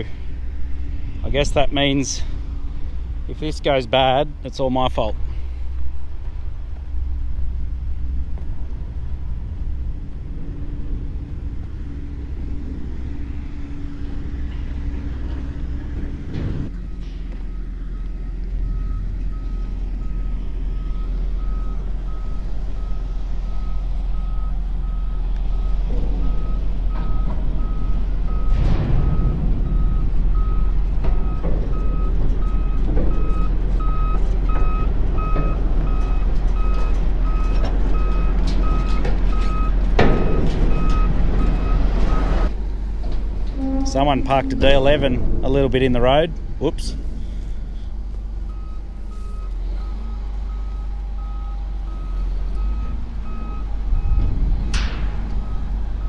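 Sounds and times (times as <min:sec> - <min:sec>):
tractor diesel engine running: 0:00.0 - 0:56.0
reversing alarm beeping: 0:16.7 - 0:42.5, 0:48.4 - 0:56.0.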